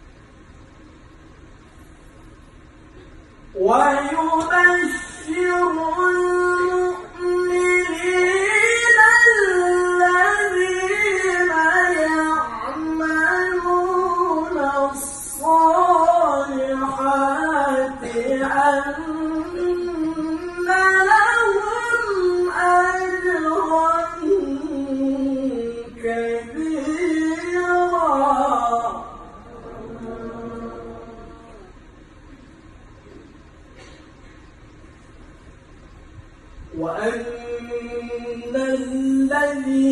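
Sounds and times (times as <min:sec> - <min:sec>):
man reciting melodically: 0:03.5 - 0:31.8, 0:36.7 - 0:39.9.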